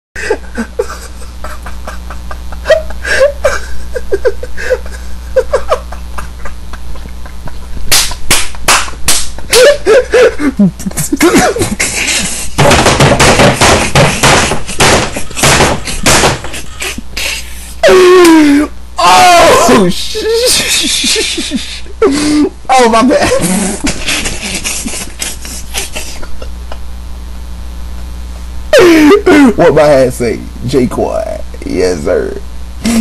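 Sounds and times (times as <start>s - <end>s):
man laughing: 0.2s - 26.9s, 28.0s - 30.1s
low electrical hum: 0.2s - 33.0s
sharp clicks and smacks: 7.8s - 9.8s, 11.8s - 17.0s.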